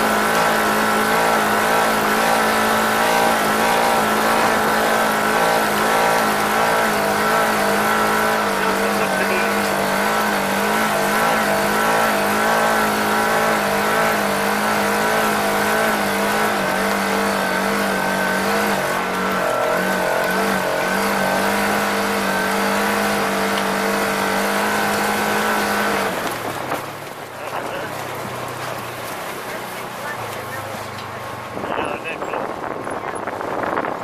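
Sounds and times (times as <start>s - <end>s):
off-road vehicle engine running: 0.0s - 34.0s
wind and terrain noise: 0.0s - 34.0s.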